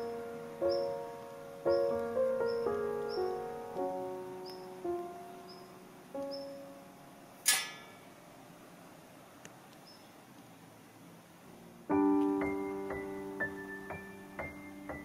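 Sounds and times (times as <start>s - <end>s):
solo piano music: 0.0s - 8.8s, 11.5s - 15.0s
sharp click with ringing: 7.4s - 8.1s.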